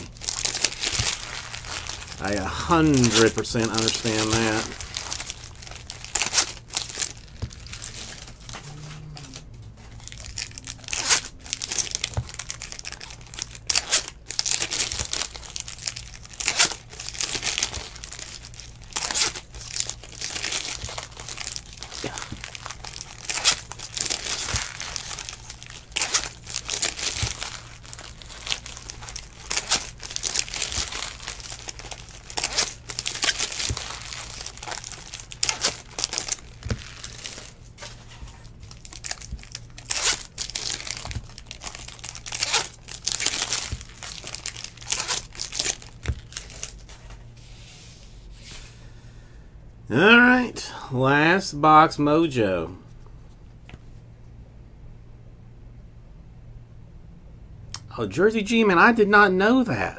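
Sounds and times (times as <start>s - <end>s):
foil wrappers crinkling and tearing: 0.0s - 47.2s
faint low hum: 0.0s - 59.9s.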